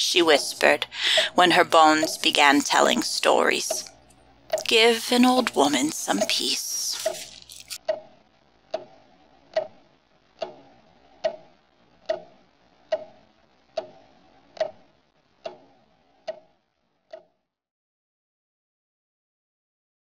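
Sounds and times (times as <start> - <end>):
clock ticking: 0.1 - 6.9, 9.5 - 9.8, 11.2 - 11.4, 12.0 - 12.3, 13.8 - 14.0, 14.6 - 14.8, 16.2 - 16.5.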